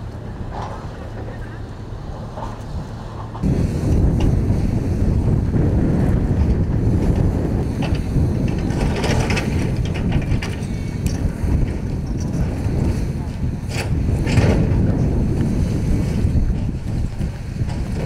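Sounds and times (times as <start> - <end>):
excavator engine rumble: 0.0 - 18.0.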